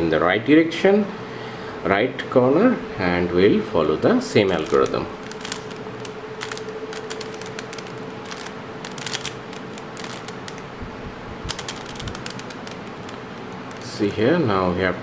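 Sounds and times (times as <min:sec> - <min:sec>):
puzzle cube clicking: 0:04.4 - 0:10.7, 0:11.4 - 0:13.9.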